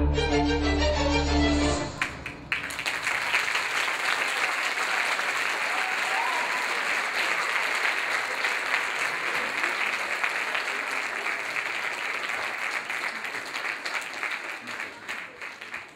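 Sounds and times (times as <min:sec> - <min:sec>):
audience applauding: 0:01.9 - 0:15.9.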